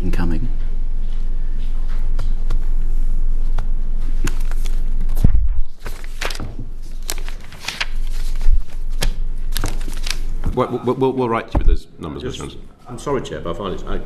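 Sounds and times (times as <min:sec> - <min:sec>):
steady low hum: 0:00.0 - 0:14.0
papers rustling: 0:03.4 - 0:10.6.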